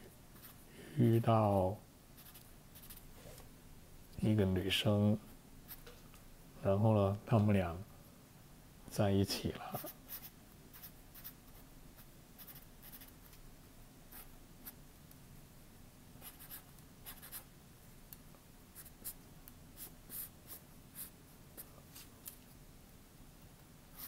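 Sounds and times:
marker scratching on paper: 2.2 - 3.0, 9.8 - 13.2, 14.1 - 14.8, 16.2 - 17.5, 18.8 - 19.2, 19.8 - 21.7.

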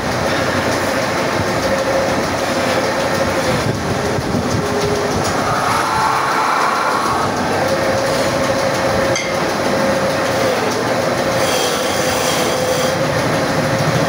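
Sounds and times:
lathe whine: 0.0 - 14.0
chisel rasping on spinning wood: 10.3 - 13.1.

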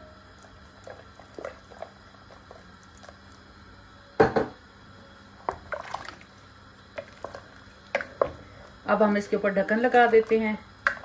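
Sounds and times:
wooden spoon stirring in steel pot: 0.8 - 3.4, 5.4 - 6.3, 6.9 - 11.0.

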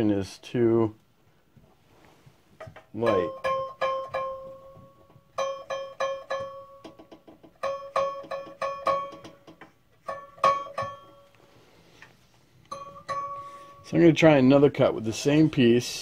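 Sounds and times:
saw blade plucked ringing: 3.0 - 4.8, 7.6 - 9.4, 10.0 - 11.4, 12.7 - 14.0.

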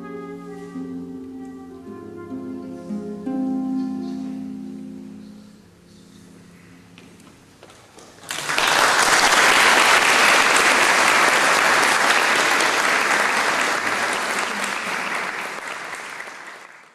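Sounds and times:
audience applauding: 8.0 - 16.9.

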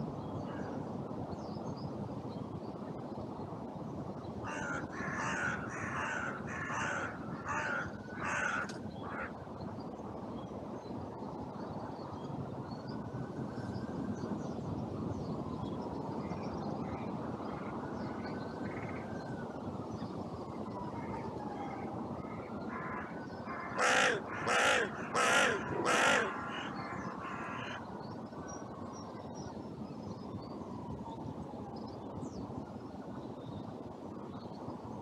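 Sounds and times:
wind noise: 0.0 - 35.0
crow cawing: 4.5 - 9.4, 22.7 - 27.8.

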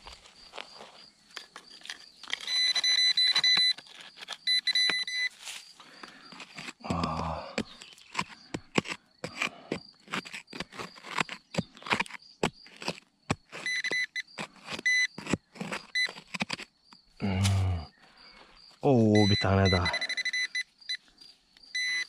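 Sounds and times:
hand pick striking stony soil: 1.3 - 17.7
pinpointer probe high beeps: 2.5 - 3.8, 4.5 - 5.3, 13.6 - 14.3, 19.1 - 21.0, 21.8 - 22.0.

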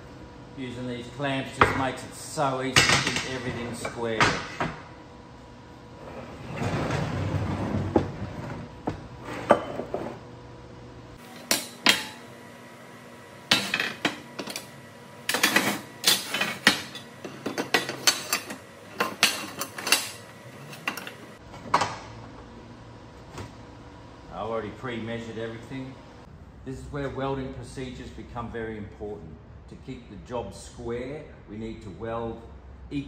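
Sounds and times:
metal tubes and clamps clanking: 15.3 - 21.3.

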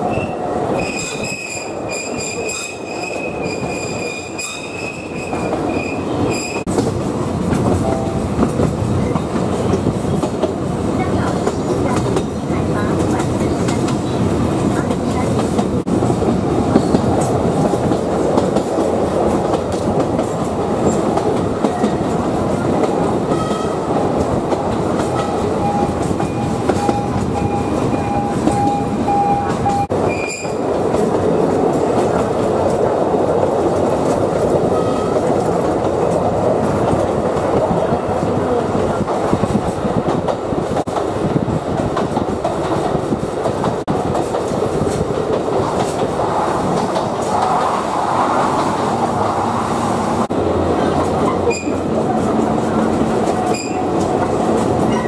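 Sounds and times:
train rumbling: 0.0 - 55.0
wheel squeal: 25.2 - 30.6, 53.5 - 53.9.

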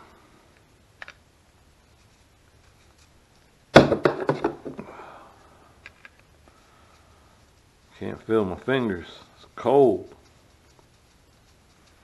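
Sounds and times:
clatter of sharp knocks: 3.7 - 4.8.

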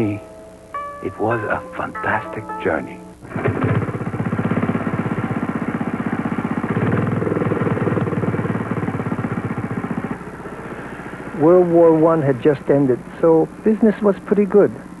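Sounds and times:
lawn mower cutting grass: 3.2 - 15.0.

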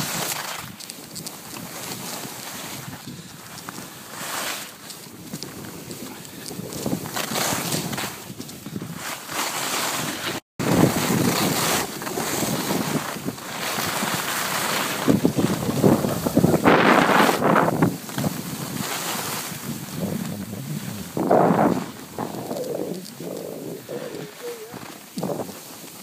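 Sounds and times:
skis scraping over snow: 0.0 - 26.0
wind buffeting microphone: 5.1 - 9.0, 10.6 - 25.8.

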